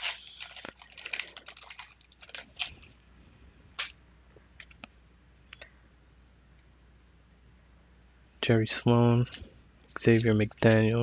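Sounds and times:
wax paper wrapper crinkling: 0:00.0 - 0:03.0, 0:09.3 - 0:10.9.

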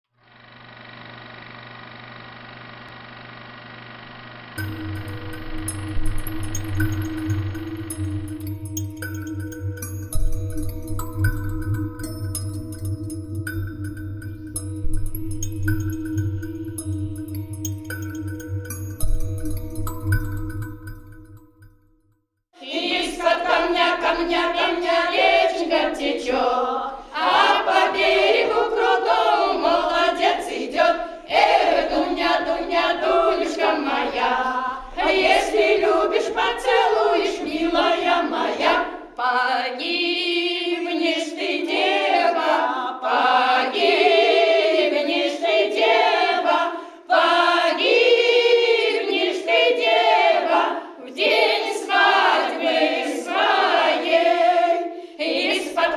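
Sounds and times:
choir of women singing a cappella: 0:22.6 - 0:55.9.

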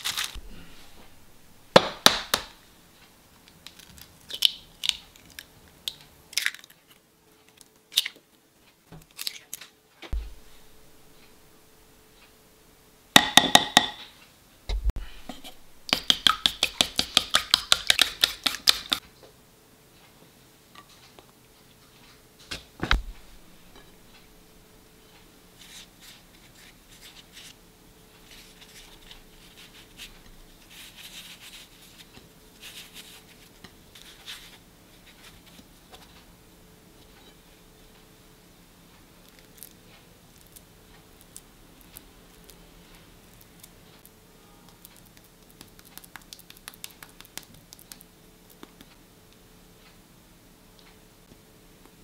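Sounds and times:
eggs beaten in wooden bowl: 0:00.4 - 0:02.6, 0:13.2 - 0:14.0, 0:14.9 - 0:19.0
knock: 0:13.2 - 0:14.0.

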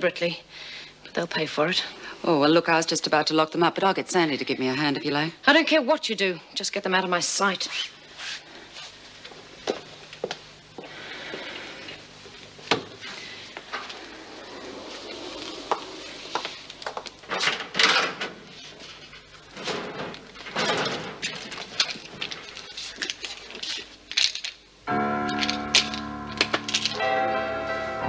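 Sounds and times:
metal locker door opening: 0:19.6 - 0:21.3.

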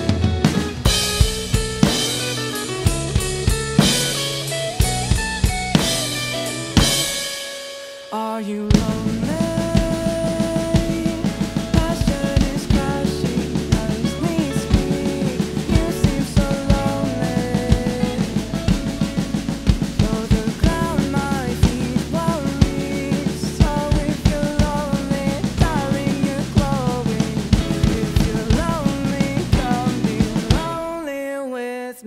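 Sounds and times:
acoustic drum kit beat: 0:00.0 - 0:31.1
recorded rock song: 0:00.0 - 0:31.8.

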